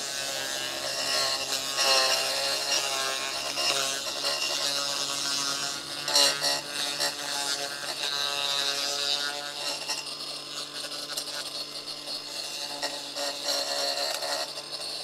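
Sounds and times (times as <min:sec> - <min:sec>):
blade cutting through turf: 0:00.0 - 0:15.0
lawn edger motor buzzing: 0:00.0 - 0:15.0
scraping clatter: 0:09.2 - 0:15.0.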